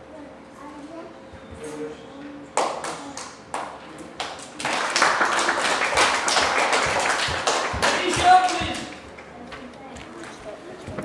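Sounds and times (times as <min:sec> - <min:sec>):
small group applause: 0:02.6 - 0:09.3
hands clapping: 0:02.6 - 0:09.6.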